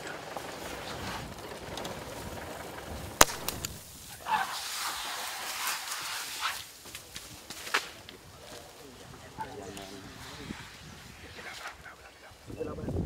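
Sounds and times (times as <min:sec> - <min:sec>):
hissing crackling noise: 0:00.0 - 0:12.5
dart rifle shot: 0:03.2 - 0:03.8.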